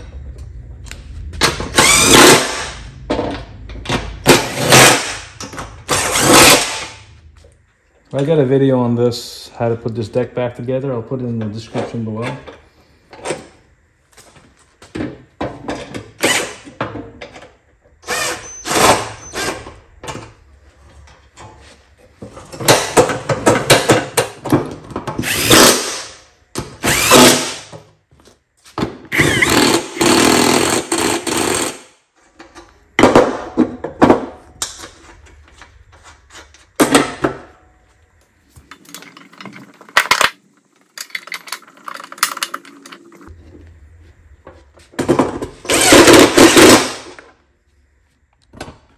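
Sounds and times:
metal parts knocking and clattering: 38.6s - 43.3s.

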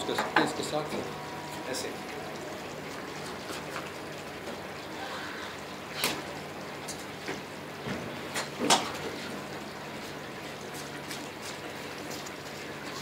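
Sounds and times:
ceiling fan humming: 0.0s - 13.0s.

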